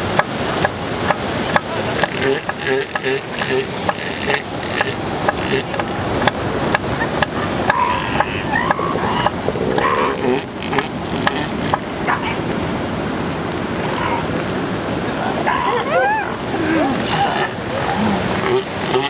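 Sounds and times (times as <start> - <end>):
surf hiss: 0.0 - 19.0
wind: 0.0 - 19.0
seal pups bleating: 2.0 - 6.0, 7.7 - 12.3, 15.5 - 19.0.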